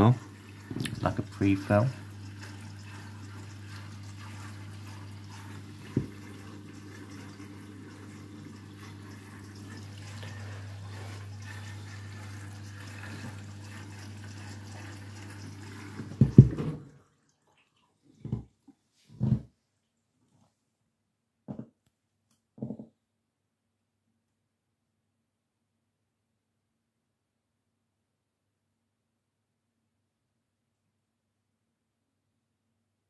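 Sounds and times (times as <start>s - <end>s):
washing machine filling with water: 0.0s - 18.5s
knock: 16.2s - 16.8s, 21.5s - 21.7s, 22.6s - 22.9s.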